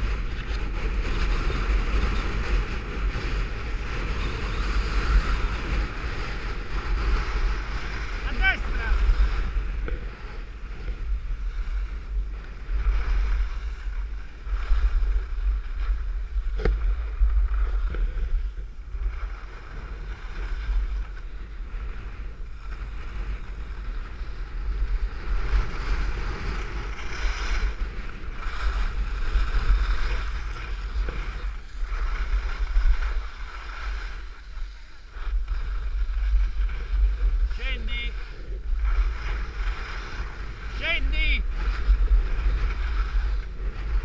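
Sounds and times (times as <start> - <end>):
skis carving over snow: 0.0 - 44.0
wind buffeting microphone: 0.0 - 44.0.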